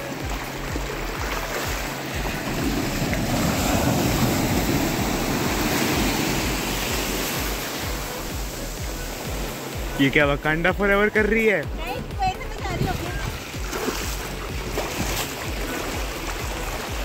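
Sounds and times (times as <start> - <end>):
sea surf breaking: 0.0 - 17.0
wind buffeting microphone: 11.7 - 15.2.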